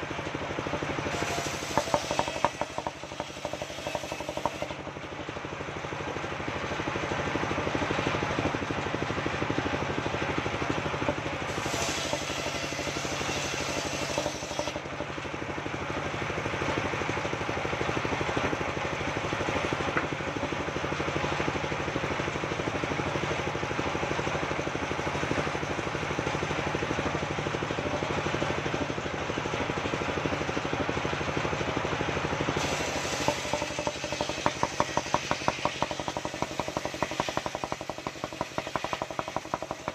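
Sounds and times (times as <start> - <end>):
circular sawmill cutting wood: 0.0 - 39.9
harsh hissy cutting sound: 11.5 - 14.8, 32.6 - 35.9.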